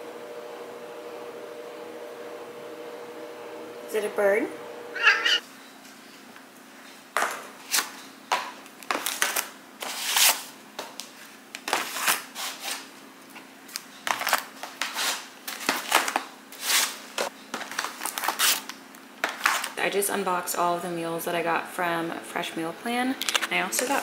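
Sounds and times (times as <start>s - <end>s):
plastic trays and paper handled: 17.5s - 19.8s.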